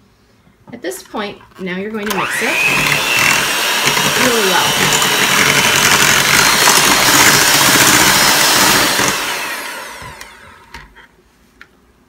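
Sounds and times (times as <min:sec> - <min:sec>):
electric hand mixer whipping batter: 0:02.0 - 0:11.0.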